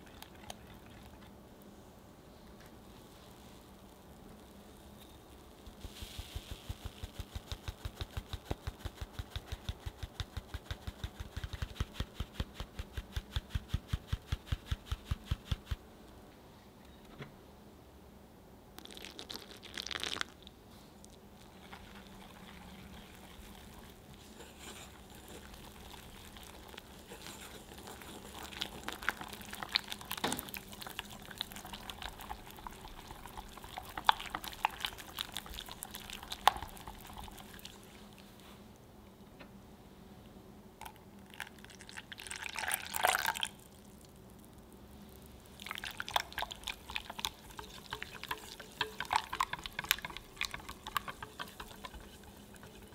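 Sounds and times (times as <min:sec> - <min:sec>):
milk pouring into bowl: 0:18.8 - 0:20.5, 0:21.1 - 0:38.2, 0:40.8 - 0:52.9
whisk scraping glass bowl: 0:21.6 - 0:32.6, 0:45.7 - 0:52.9.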